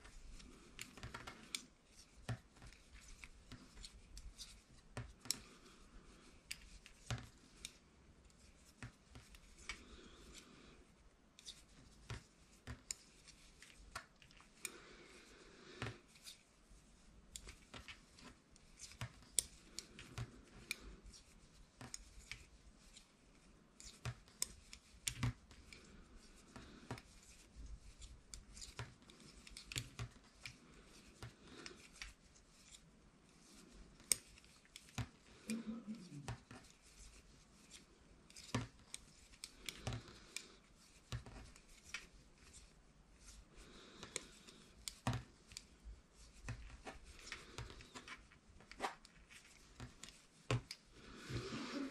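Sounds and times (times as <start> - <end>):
knitting needles clicking: 0.0 - 5.6, 6.4 - 10.0, 17.3 - 23.1, 23.7 - 32.8, 33.5 - 50.9.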